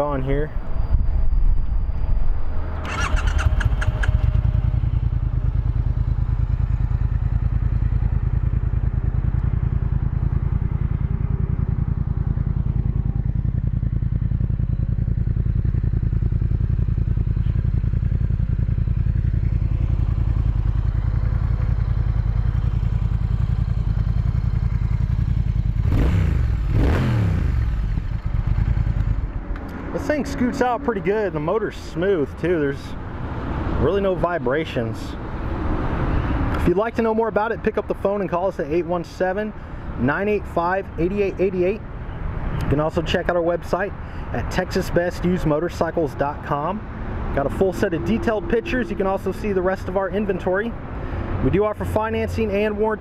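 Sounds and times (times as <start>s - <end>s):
motorcycle engine starting and idling: 2.6s - 35.0s, 36.0s - 50.7s
engine revving from throttle blips: 25.2s - 34.1s, 46.8s - 52.6s.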